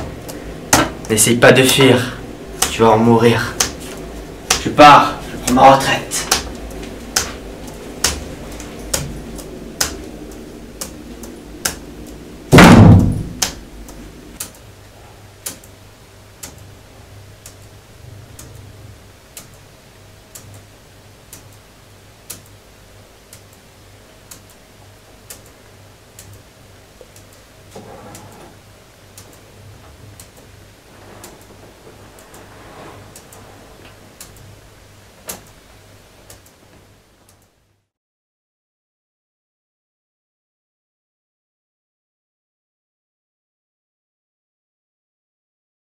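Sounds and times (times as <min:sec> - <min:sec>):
low steady hum: 0:00.0 - 0:37.9
door slamming: 0:12.5 - 0:13.5.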